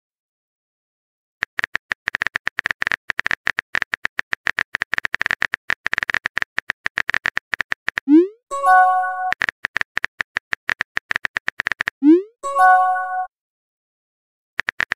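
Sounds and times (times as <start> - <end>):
keyboard typing clicks: 1.4 - 13.3, 14.6 - 14.9
message sent chime: 8.1 - 9.4, 12.2 - 13.3.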